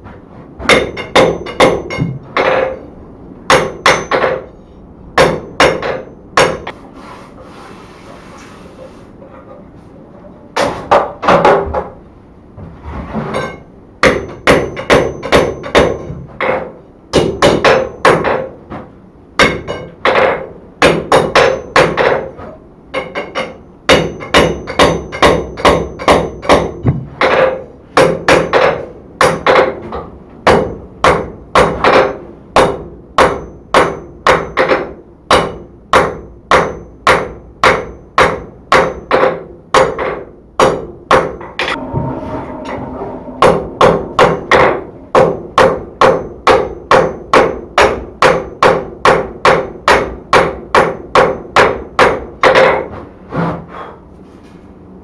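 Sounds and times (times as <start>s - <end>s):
hammer striking hot steel on anvil: 0.7s - 2.8s, 3.5s - 4.6s, 5.2s - 6.8s, 13.4s - 18.6s, 19.4s - 29.8s, 30.4s - 52.8s.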